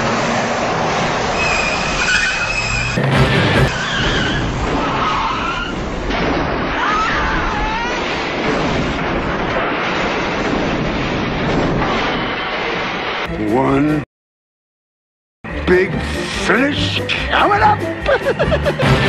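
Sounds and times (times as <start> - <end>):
truck crashing and scraping: 0.0 - 6.7
short squeals: 1.4 - 3.0
loud crash hit: 3.0 - 6.8.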